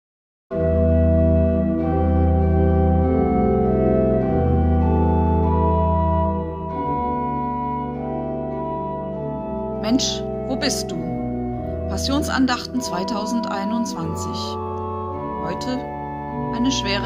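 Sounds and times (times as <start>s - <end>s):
organ playing sustained chords: 0.5s - 17.0s.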